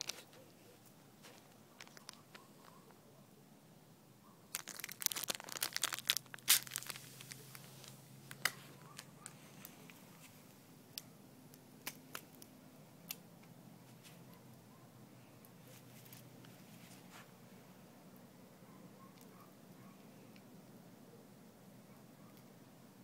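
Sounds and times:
foil packet crinkling: 0.0s - 0.4s, 1.2s - 2.4s, 4.5s - 10.0s.

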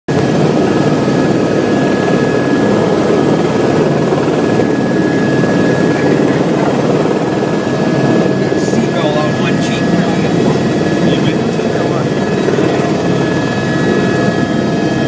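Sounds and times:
helicopter engine and rotor drone: 0.1s - 15.0s.

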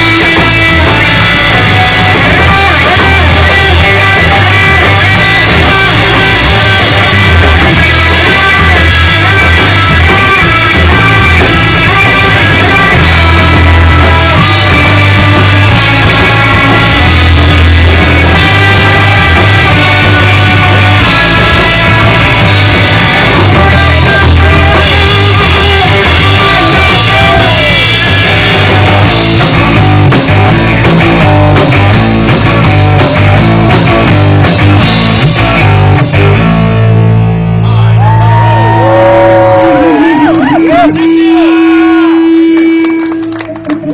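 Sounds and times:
live rock band playing: 0.0s - 43.9s.

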